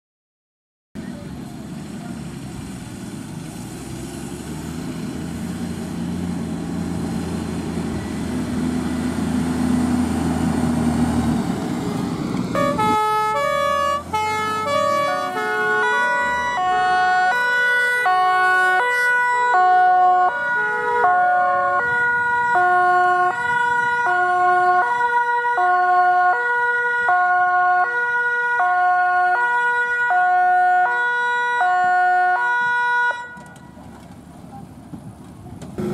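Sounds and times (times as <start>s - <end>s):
heavy vehicle engine running: 1.0s - 25.0s, 33.4s - 35.9s
two-tone emergency siren: 12.5s - 33.8s.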